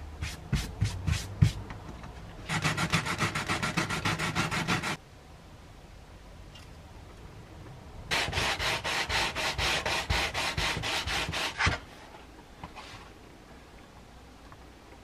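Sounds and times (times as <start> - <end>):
plastic sanded on sandpaper: 2.5 - 5.0, 8.1 - 11.9.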